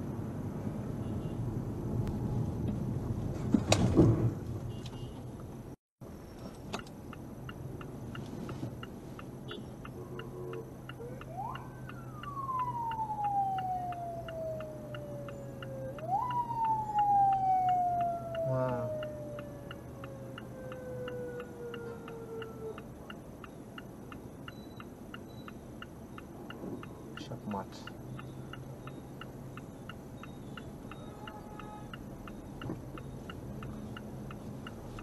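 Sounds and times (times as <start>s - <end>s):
traffic and road noise: 0.0s - 35.0s
clock-like ticking: 7.0s - 35.0s
siren-like tone: 10.1s - 22.8s.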